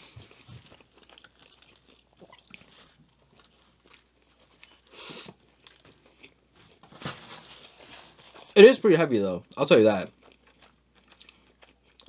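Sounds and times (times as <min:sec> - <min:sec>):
close-up chewing: 0:00.0 - 0:06.8, 0:09.4 - 0:12.0.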